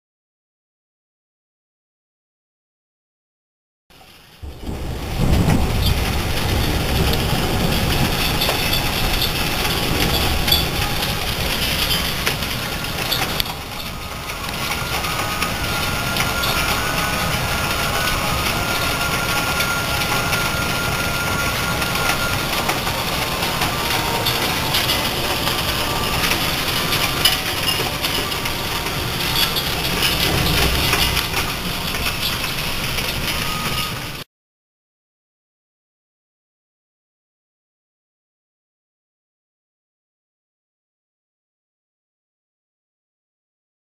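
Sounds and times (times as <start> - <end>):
hailstones ticking: 4.0 - 34.2
rain hiss: 4.0 - 34.2
low rumble: 4.4 - 34.2.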